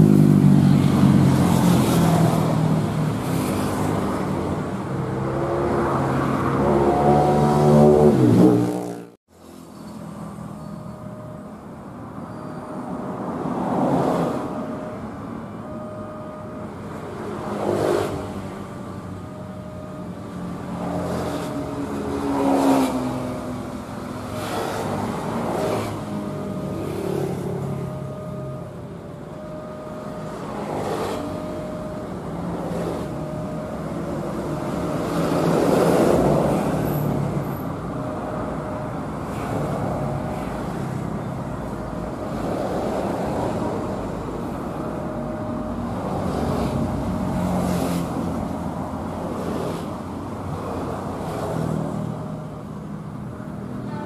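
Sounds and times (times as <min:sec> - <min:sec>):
vehicle engines revving: 0:00.0 - 0:10.6, 0:16.6 - 0:54.0
crossing warning tone: 0:00.0 - 0:54.0
road traffic passing: 0:00.0 - 0:54.0.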